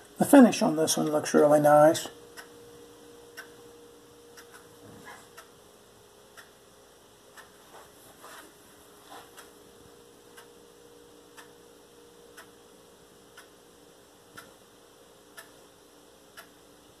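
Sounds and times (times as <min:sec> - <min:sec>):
low room hum: 0:00.0 - 0:17.0
clock ticking: 0:00.3 - 0:05.6, 0:06.3 - 0:06.6, 0:07.3 - 0:07.6, 0:09.4 - 0:13.6, 0:14.3 - 0:17.0.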